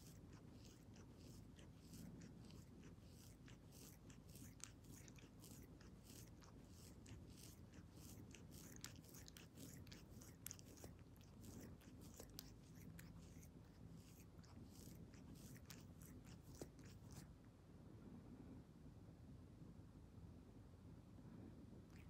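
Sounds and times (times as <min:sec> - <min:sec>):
cat licking paw: 0:00.0 - 0:17.3.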